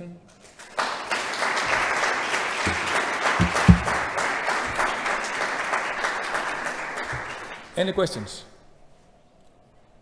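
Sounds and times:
audience applauding: 0:00.6 - 0:07.8
short low thumps: 0:02.7 - 0:04.1.

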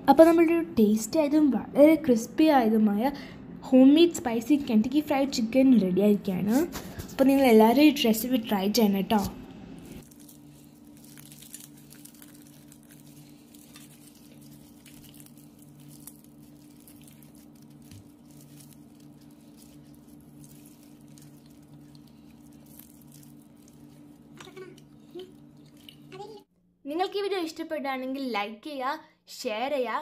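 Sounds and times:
steady low hum: 0:00.0 - 0:26.5
fried chicken crust crackling: 0:10.0 - 0:26.1.

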